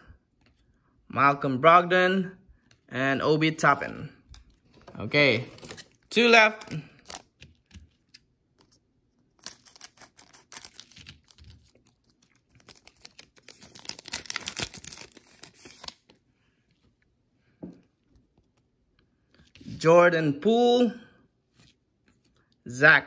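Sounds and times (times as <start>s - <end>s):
plastic wrapper tearing and crinkling: 5.6s - 7.6s, 9.3s - 16.2s.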